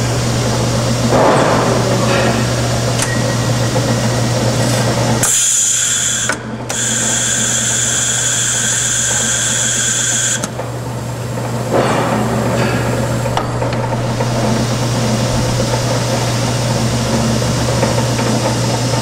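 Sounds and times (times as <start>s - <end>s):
band saw cutting steel: 5.2s - 10.5s.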